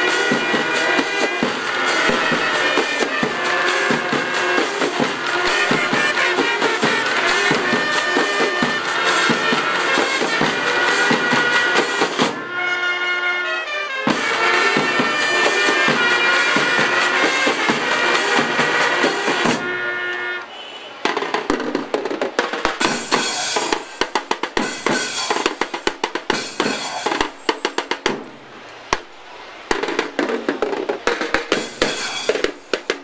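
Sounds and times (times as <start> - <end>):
snare and bass drum cadence: 0.0 - 12.7, 14.0 - 33.0
brass band holding notes: 0.0 - 21.1, 22.8 - 27.5.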